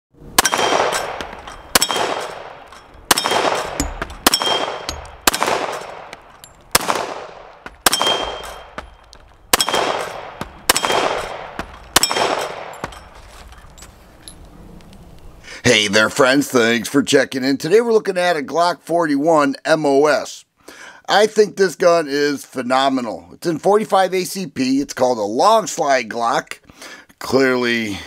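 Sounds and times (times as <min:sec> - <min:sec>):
metallic ring of steel targets: 0:00.3 - 0:06.6, 0:07.8 - 0:14.5
pistol shots with short echo: 0:00.3 - 0:13.1.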